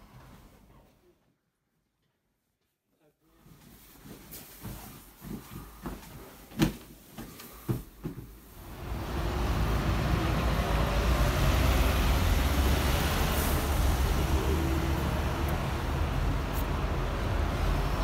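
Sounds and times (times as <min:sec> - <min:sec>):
low vehicle rumble: 0:08.6 - 0:18.0.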